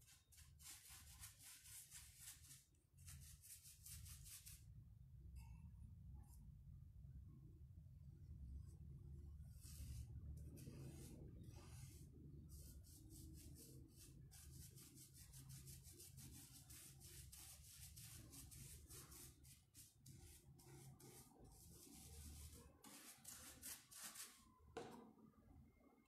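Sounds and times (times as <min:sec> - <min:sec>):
paintbrush strokes on rough wood: 0:09.5 - 0:24.4.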